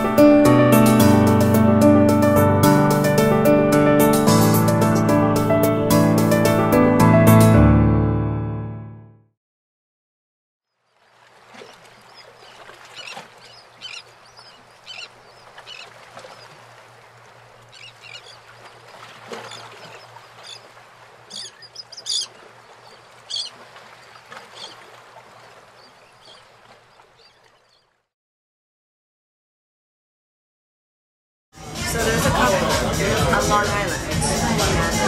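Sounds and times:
faint water wash: 10.9s - 27.9s
birds calling: 10.9s - 28.0s.

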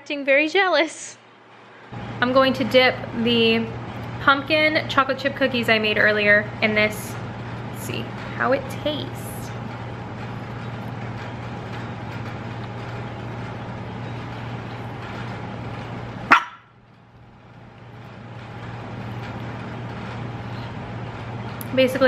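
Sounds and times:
low room hum: 0.0s - 22.0s
small dog barking: 16.3s - 16.7s.

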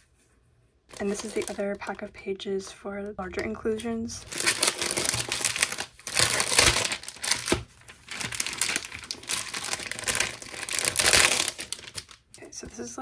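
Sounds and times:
plastic packaging crinkling: 0.9s - 1.9s, 4.2s - 12.4s.

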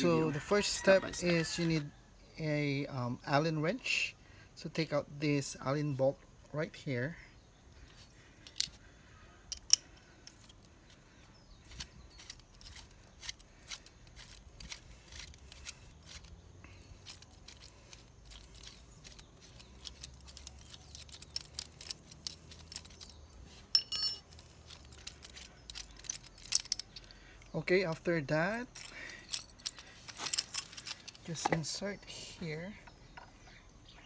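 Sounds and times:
small metallic clicks: 7.7s - 8.8s, 9.5s - 27.6s, 28.7s - 31.7s
ringing metal clink: 23.7s - 24.4s.

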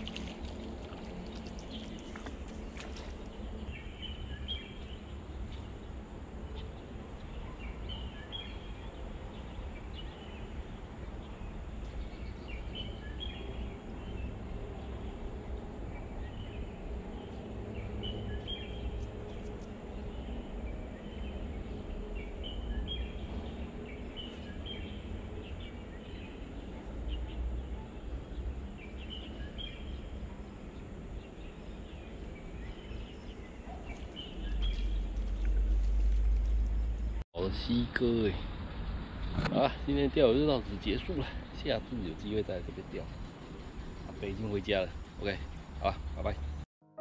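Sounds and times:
fish splashing: 0.0s - 3.3s
bird chirps: 16.0s - 37.8s, 40.1s - 46.6s.

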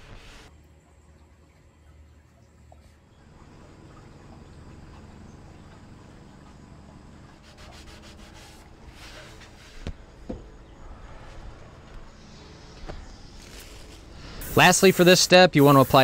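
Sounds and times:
paper towel wiping metal: 7.4s - 9.9s.

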